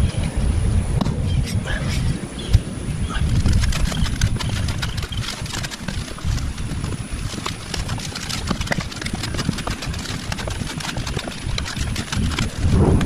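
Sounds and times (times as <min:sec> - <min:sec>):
low uneven rumble: 0:00.0 - 0:13.0
hand tool digging into clay: 0:03.1 - 0:13.0.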